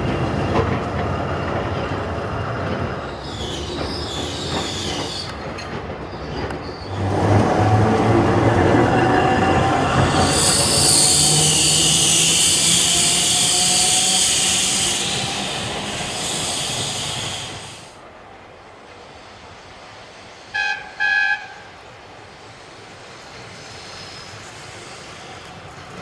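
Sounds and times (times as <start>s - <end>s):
tram wheels squealing: 0.0s - 17.9s, 18.8s - 26.0s
tram horn toots: 20.5s - 21.7s.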